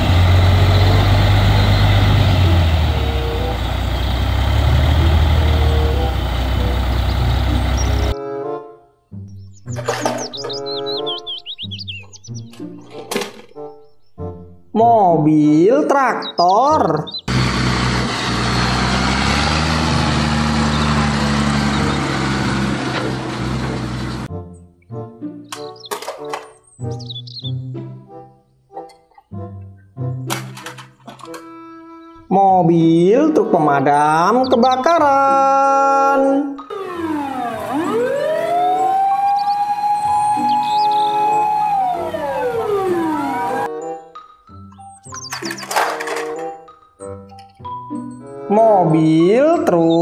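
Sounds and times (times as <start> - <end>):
truck diesel engine running: 0.0 - 8.2, 17.3 - 24.3, 36.7 - 43.7.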